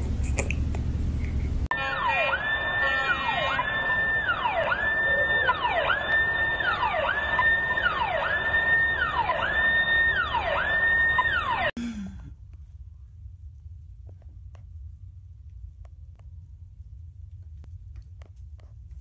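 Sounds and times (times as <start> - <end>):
siren wailing: 1.7 - 11.8.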